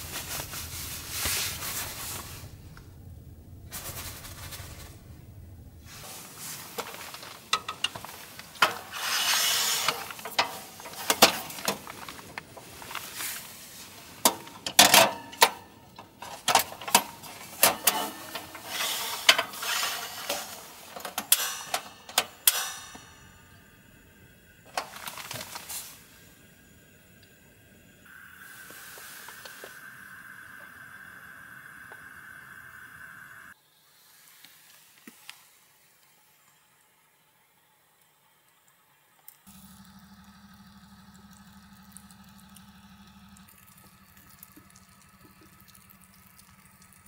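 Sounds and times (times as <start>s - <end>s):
gas burner hissing: 0.0s - 35.0s.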